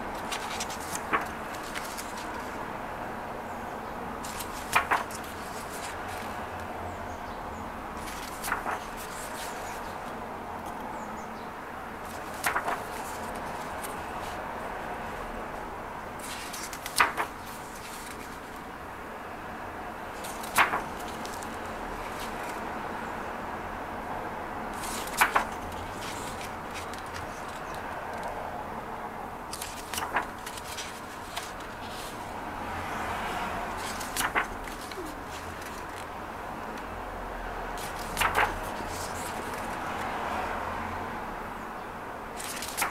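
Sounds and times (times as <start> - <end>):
book pages turning: 0.0 - 2.6, 4.2 - 6.7, 8.0 - 10.8, 12.0 - 14.4, 16.2 - 18.7, 20.1 - 22.7, 24.7 - 28.4, 29.5 - 36.1, 37.8 - 40.3, 42.4 - 42.9.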